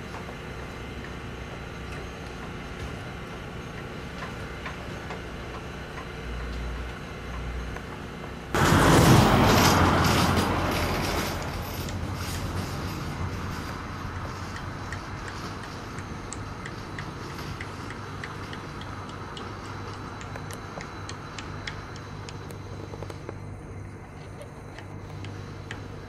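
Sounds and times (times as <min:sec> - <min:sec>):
steady low hum: 0:00.0 - 0:26.0
loud rush of noise: 0:08.6 - 0:14.8.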